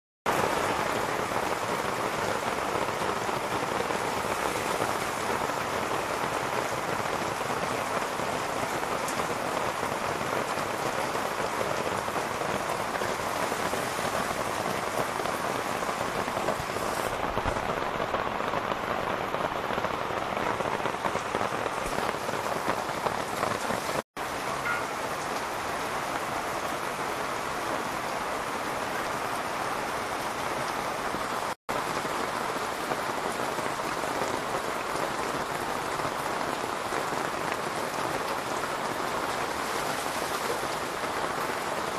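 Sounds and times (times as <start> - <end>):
heavy rain on ground and foliage: 0.3 - 41.9.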